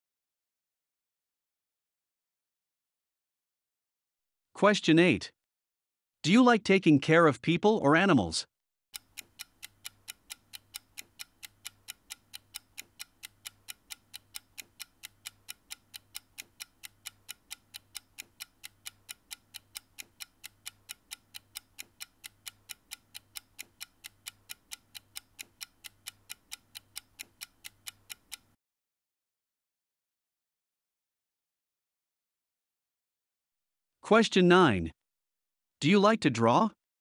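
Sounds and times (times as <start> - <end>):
clock ticking: 9.0 - 28.6.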